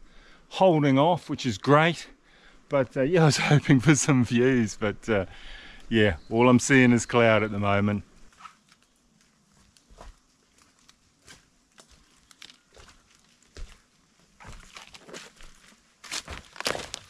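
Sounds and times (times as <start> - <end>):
faint footsteps on track: 8.2 - 17.0.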